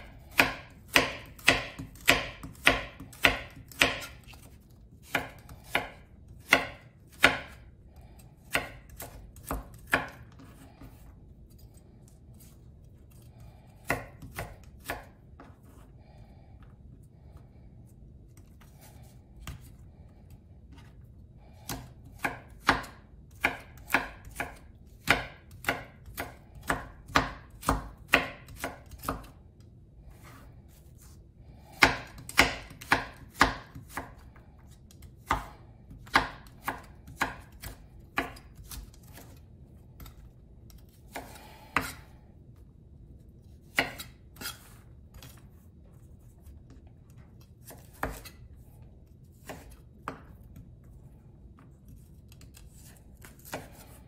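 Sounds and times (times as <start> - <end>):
knife chopping on wooden board: 0.0 - 7.7, 8.4 - 11.0, 13.8 - 15.6, 21.7 - 29.3, 31.8 - 34.2, 34.9 - 39.4, 40.8 - 42.1, 43.6 - 45.4, 47.6 - 48.4, 49.3 - 50.6, 51.9 - 54.0.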